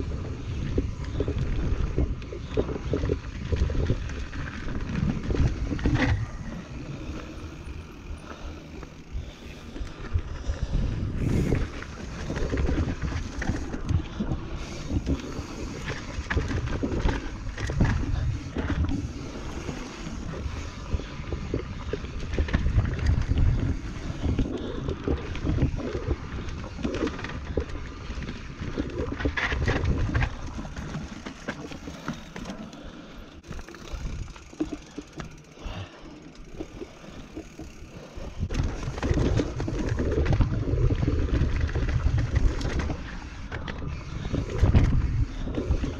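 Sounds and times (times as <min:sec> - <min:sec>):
wind noise: 0:00.0 - 0:31.8, 0:37.5 - 0:45.9.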